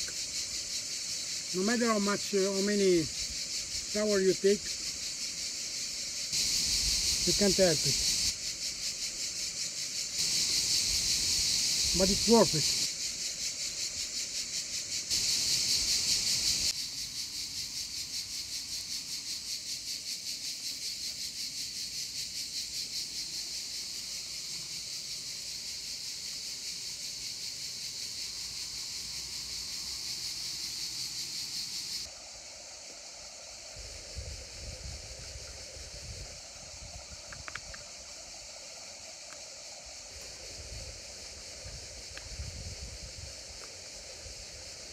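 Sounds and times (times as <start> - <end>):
insects buzzing: 0.0 - 44.9
wind gusts on microphone: 33.8 - 37.8, 40.4 - 43.6.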